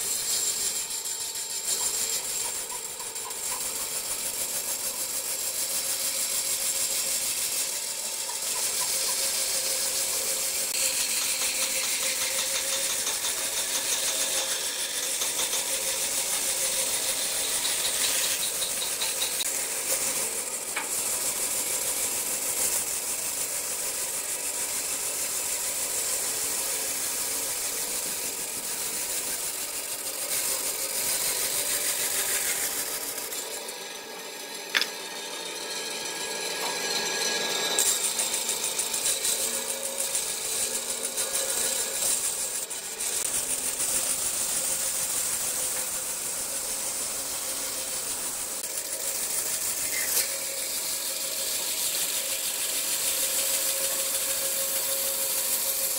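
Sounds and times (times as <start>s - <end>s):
bandsaw cutting wood: 0.0s - 55.9s.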